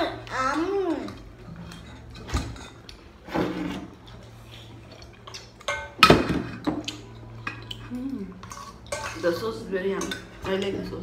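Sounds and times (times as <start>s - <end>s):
spoons clinking on metal bowls: 5.2s - 11.0s.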